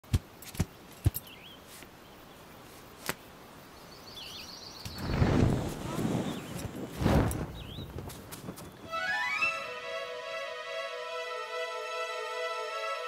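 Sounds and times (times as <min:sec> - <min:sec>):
small birds chirping: 0:00.1 - 0:08.9.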